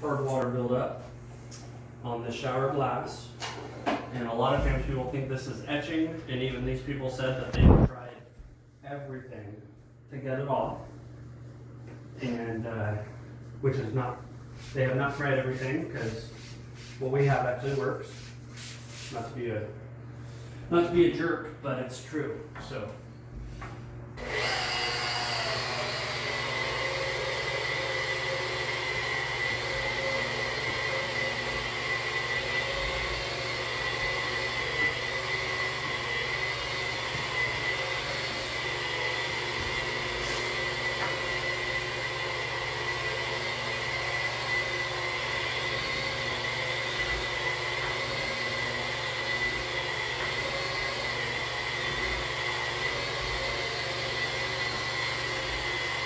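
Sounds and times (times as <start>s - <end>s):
electric polisher whining: 24.2s - 56.0s.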